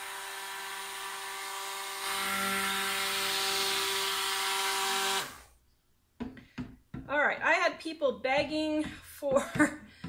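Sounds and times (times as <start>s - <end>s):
stick blender motor whine: 0.0s - 5.5s.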